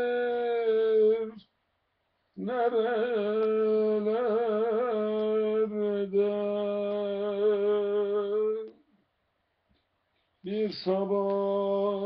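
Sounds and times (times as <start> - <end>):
man singing unaccompanied: 0.0 - 1.5, 2.4 - 8.9, 10.4 - 12.0.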